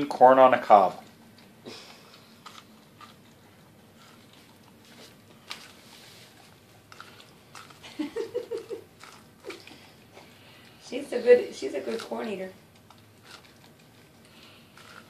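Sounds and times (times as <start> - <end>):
dog chewing corn cob: 0.0 - 15.0
person's voice: 10.8 - 12.6.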